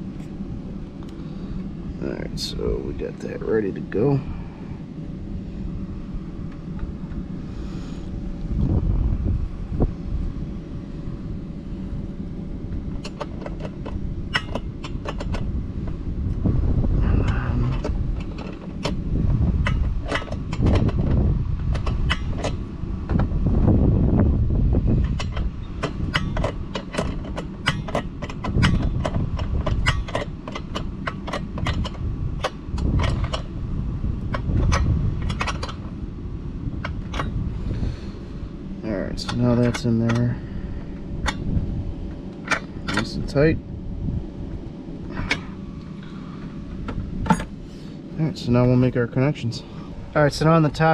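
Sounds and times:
low rumble: 0.0s - 50.9s
wrench clicking: 25.0s - 33.5s.

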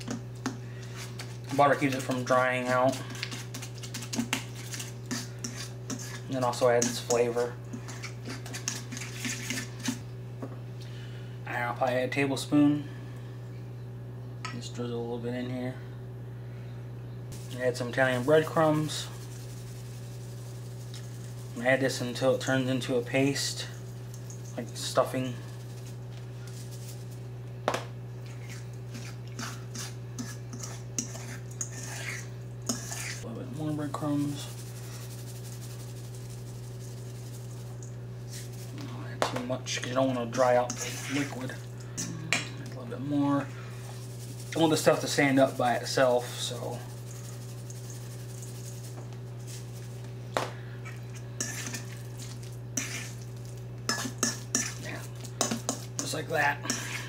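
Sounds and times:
metal spoon scraping steel bowl: 0.9s - 10.0s, 28.3s - 33.3s, 39.8s - 42.5s, 50.8s - 53.2s, 53.9s - 57.0s
low hum: 12.8s - 57.0s.

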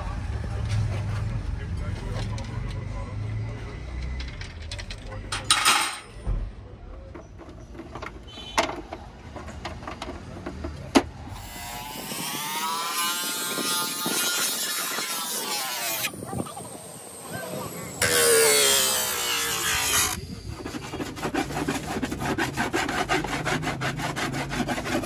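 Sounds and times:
plastic housing knocks and clicks: 7.1s - 11.1s.

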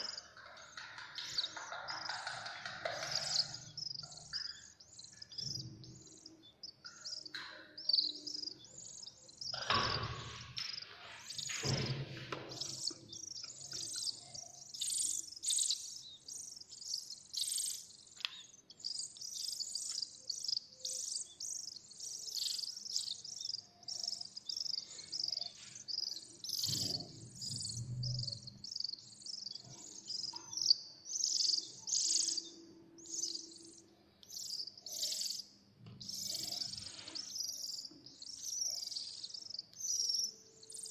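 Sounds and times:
nestling birds chirping: 0.0s - 40.9s.

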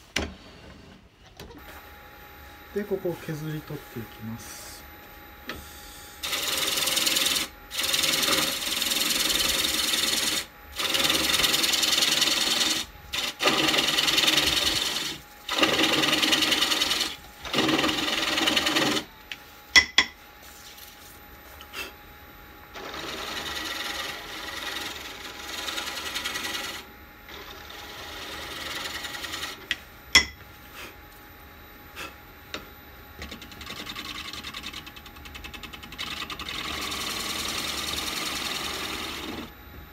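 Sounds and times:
gouge scraping wood on lathe: 6.2s - 19.1s, 22.8s - 29.6s, 33.4s - 39.5s.

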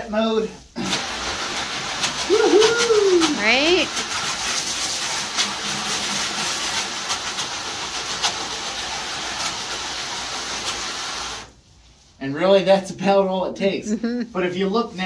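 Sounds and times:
hose jet spraying water on mesh: 0.8s - 11.6s.

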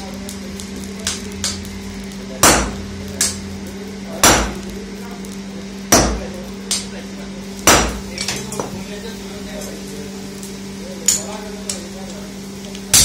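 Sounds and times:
steady low hum: 0.0s - 13.0s
hammer striking iron on anvil: 2.4s - 3.4s, 4.2s - 4.7s, 5.9s - 6.9s, 7.6s - 8.7s.

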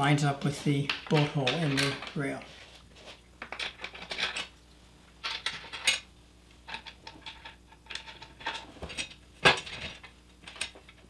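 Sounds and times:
bolts clinking on metal rails: 0.9s - 2.3s.

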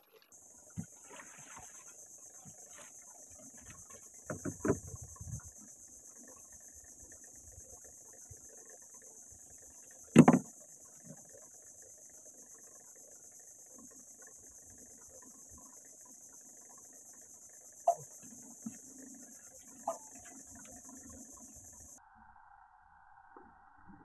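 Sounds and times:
insects droning: 0.0s - 24.0s
gear knocking in wooden boat: 3.5s - 5.5s, 10.1s - 10.6s.

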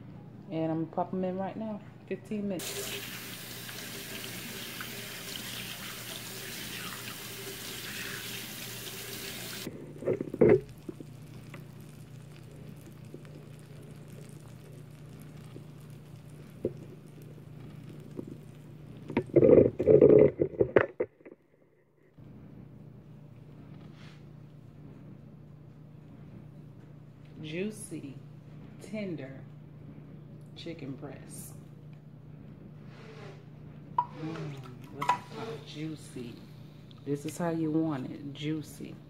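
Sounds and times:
steady low hum: 9.6s - 39.0s.

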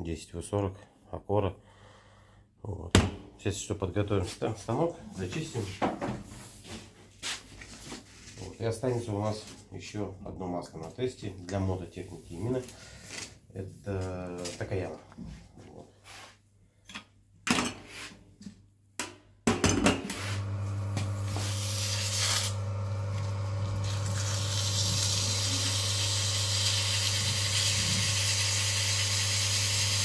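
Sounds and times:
electric motor humming: 20.4s - 30.0s.

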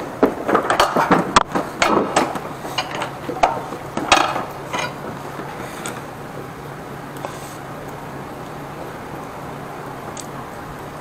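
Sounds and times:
hard objects knocking and clanking: 0.0s - 6.0s
faint steady hum: 0.0s - 11.0s.

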